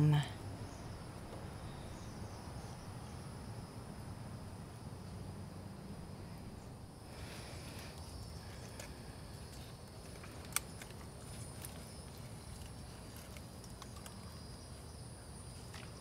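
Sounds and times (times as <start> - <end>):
plastic pots clicking together: 9.5 - 14.3.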